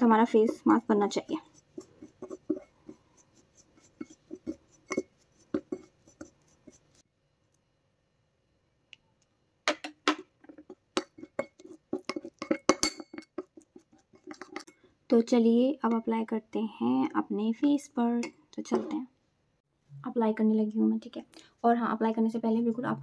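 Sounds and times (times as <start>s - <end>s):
spoon clinking against ceramic bowl: 3.9s - 6.3s, 10.7s - 13.6s.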